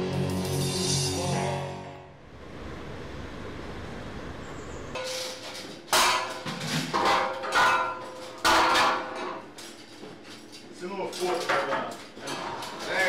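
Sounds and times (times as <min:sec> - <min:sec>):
poles clattering against railings: 0:05.0 - 0:13.0.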